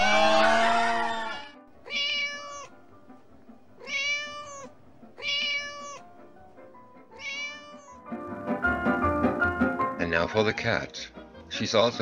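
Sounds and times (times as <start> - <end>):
cat meowing: 0.0 - 2.8, 3.8 - 6.2, 7.1 - 8.1.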